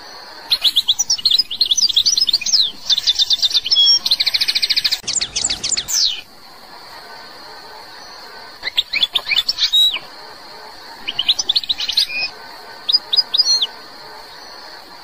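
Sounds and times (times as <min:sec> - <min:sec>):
goldfinch singing: 0:00.5 - 0:06.3, 0:08.6 - 0:10.1, 0:10.9 - 0:14.4.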